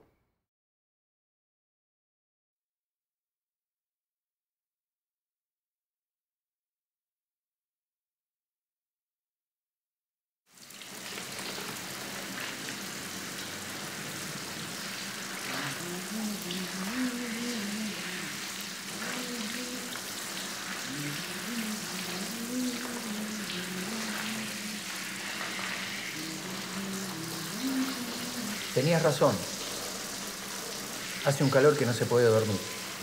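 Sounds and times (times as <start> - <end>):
shower water spraying: 10.6 - 33.0.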